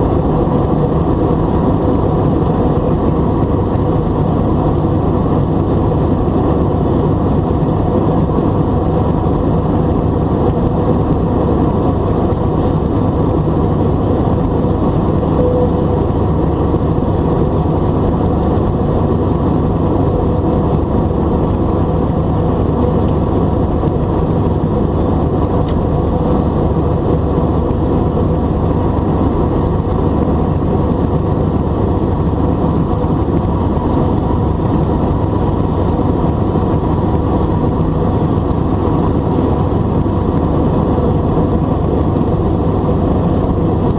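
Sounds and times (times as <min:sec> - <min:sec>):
jet engines at climb thrust: 0:00.0 - 0:43.9.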